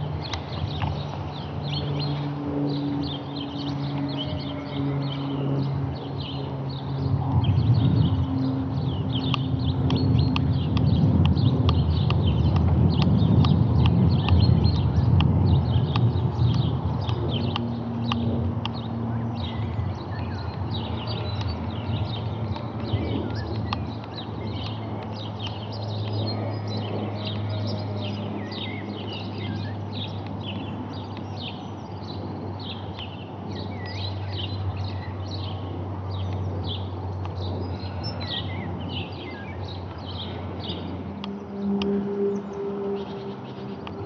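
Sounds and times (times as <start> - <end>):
low steady rumble: 0.0 - 44.0
small birds chirping: 0.0 - 44.0.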